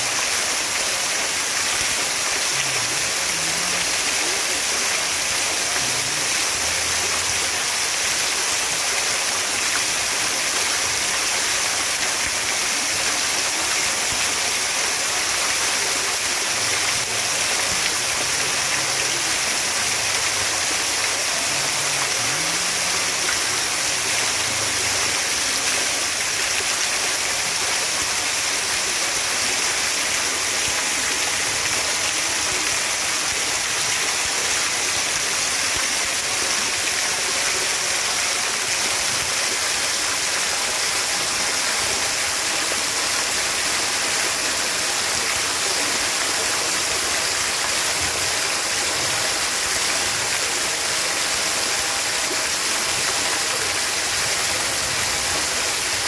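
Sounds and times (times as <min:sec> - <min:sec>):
fountain splashing into pool: 0:00.0 - 0:56.0.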